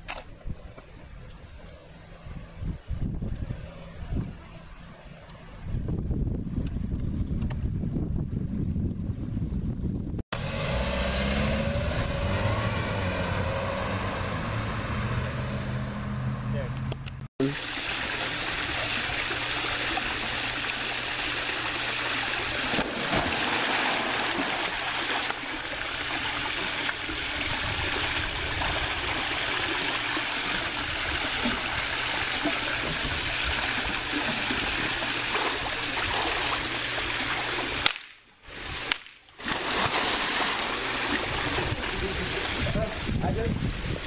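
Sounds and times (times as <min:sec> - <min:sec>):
water splashing from swimming: 0:17.4 - 0:43.1.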